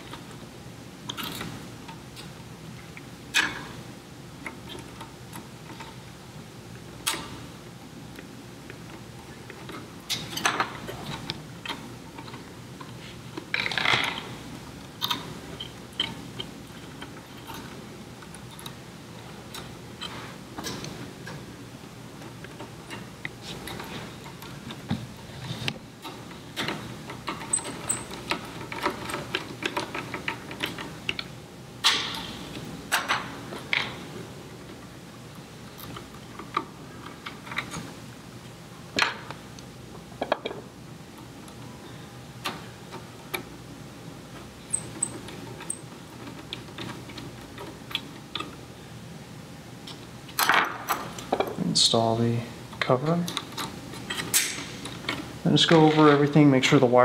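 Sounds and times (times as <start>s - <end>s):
wire connectors clicking and rattling: 52.8s - 56.4s.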